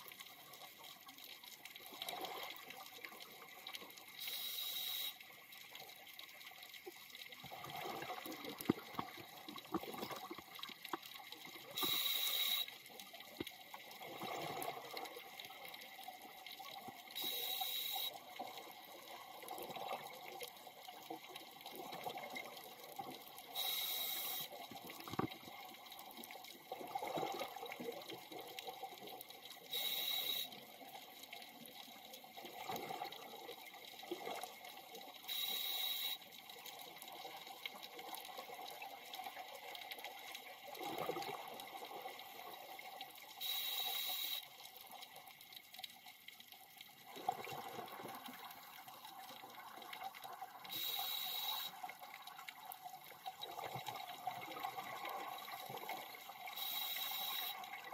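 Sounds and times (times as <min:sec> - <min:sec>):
regulator hissing inhalations: 0:04.2 - 0:05.2, 0:11.8 - 0:12.7, 0:23.6 - 0:24.5, 0:29.8 - 0:30.5, 0:43.4 - 0:44.4, 0:50.7 - 0:51.7, 0:56.6 - 0:57.6.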